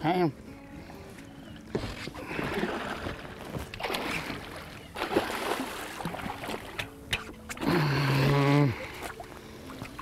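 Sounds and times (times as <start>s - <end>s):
fish splashing water: 2.2s - 7.7s.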